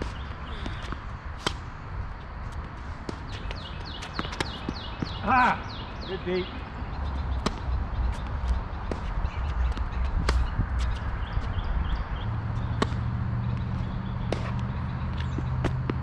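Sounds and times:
rackets striking tennis ball: 3.0 - 5.4, 7.4 - 11.1, 12.6 - 16.0
steady low rumble: 6.5 - 16.0
ball bouncing: 12.6 - 16.0.

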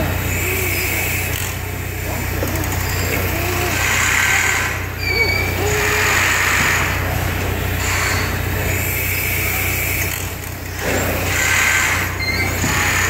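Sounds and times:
engine humming with hiss: 0.0 - 7.8.

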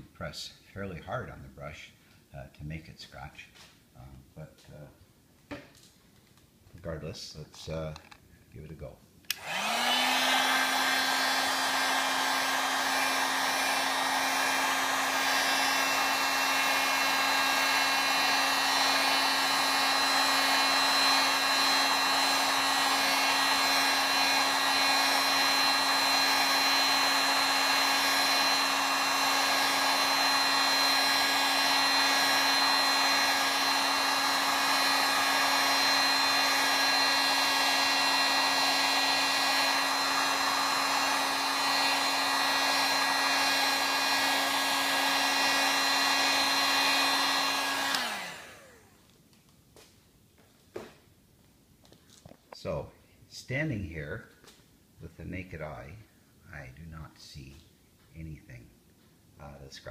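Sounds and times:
heat gun blowing and whining: 9.3 - 49.2.

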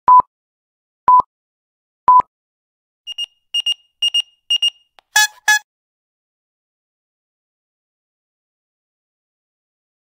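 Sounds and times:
countdown beeps: 3.1 - 5.6.

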